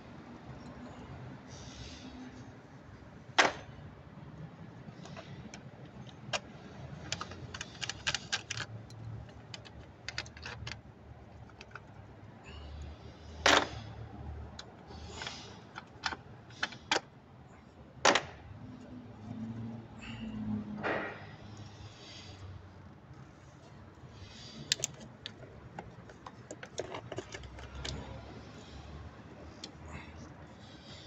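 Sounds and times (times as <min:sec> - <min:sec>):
hand tools clicking and tapping: 0:05.0 - 0:10.8, 0:24.6 - 0:28.6.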